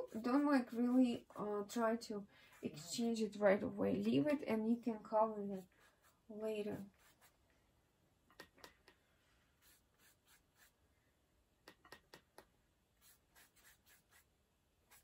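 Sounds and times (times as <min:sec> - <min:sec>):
paintbrush dabbing paint: 0:00.0 - 0:03.5, 0:05.3 - 0:07.4, 0:09.6 - 0:10.8, 0:13.0 - 0:15.0.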